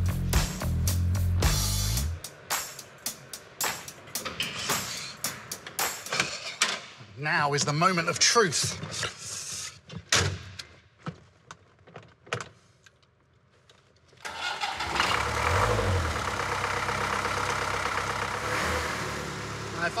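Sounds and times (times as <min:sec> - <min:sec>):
diesel engine starting and idling: 0:14.2 - 0:20.0.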